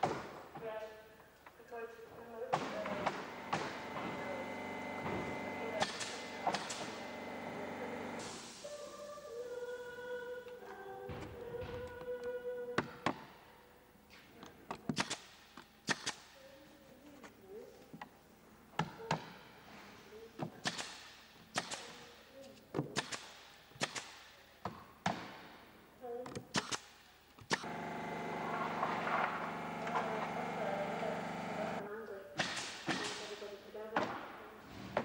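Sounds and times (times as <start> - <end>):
nail gun firing into wood: 5.0 - 7.0, 14.9 - 16.3, 20.6 - 22.0, 23.0 - 24.2, 26.5 - 27.7, 32.4 - 33.3.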